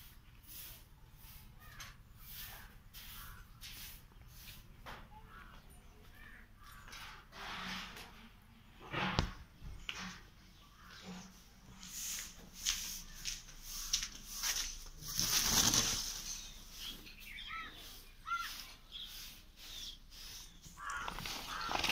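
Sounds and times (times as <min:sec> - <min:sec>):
bird calling: 0:01.2 - 0:07.1, 0:15.8 - 0:21.9
footsteps: 0:11.1 - 0:16.2.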